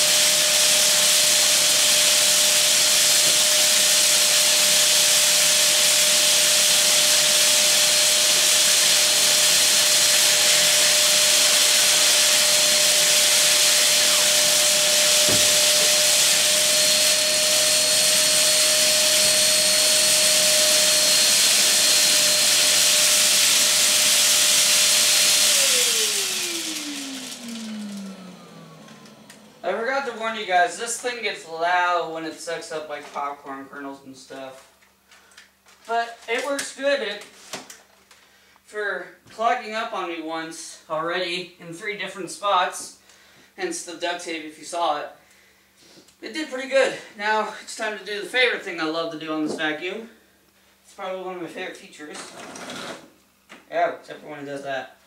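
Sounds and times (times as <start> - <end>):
vacuum cleaner running: 0.0 - 31.3.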